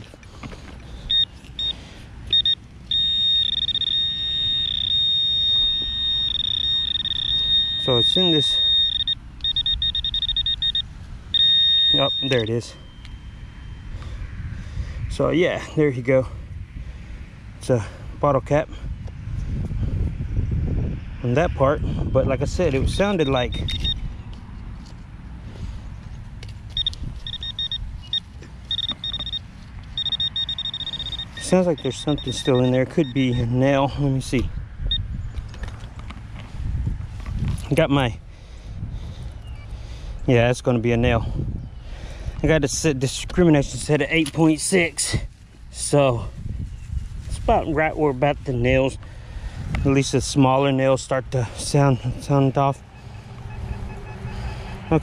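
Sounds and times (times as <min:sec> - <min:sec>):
metal detector beeps: 0:01.0 - 0:13.9, 0:22.3 - 0:24.0, 0:26.7 - 0:35.1, 0:53.0 - 0:55.0
continuous electronic tone: 0:01.0 - 0:14.3, 0:22.3 - 0:24.1, 0:26.7 - 0:35.1, 0:52.7 - 0:55.0.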